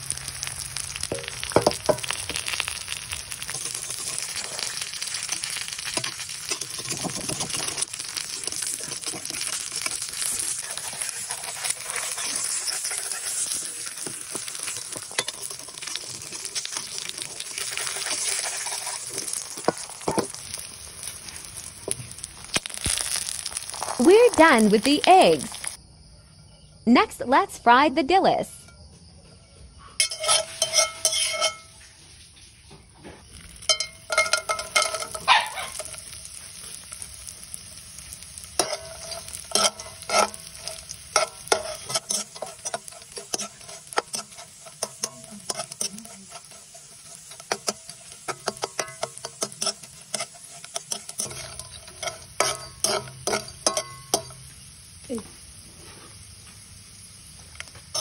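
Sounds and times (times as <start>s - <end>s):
fish sizzling in hot oil: 0.0s - 25.8s, 30.0s - 58.0s
metal spatula scraping a pan: 3.4s - 21.4s, 30.0s - 36.4s, 38.5s - 54.4s.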